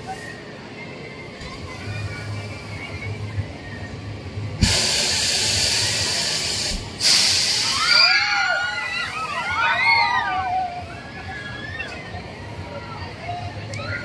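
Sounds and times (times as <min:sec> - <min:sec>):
air cylinders venting hiss: 0:00.0 - 0:00.7, 0:01.4 - 0:11.4
riders shrieking: 0:07.6 - 0:12.2.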